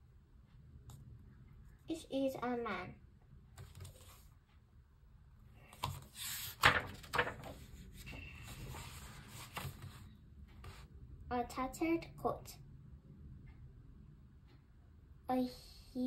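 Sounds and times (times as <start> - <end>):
book pages turning: 3.6 - 4.3, 5.7 - 10.8
paper rubbing: 6.0 - 10.0.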